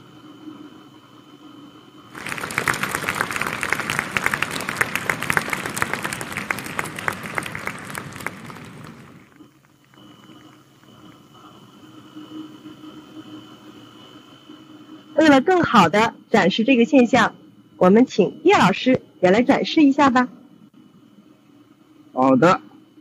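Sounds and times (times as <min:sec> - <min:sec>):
cabin hum with high tone: 0:00.0 - 0:23.0
audience applauding: 0:02.1 - 0:10.5.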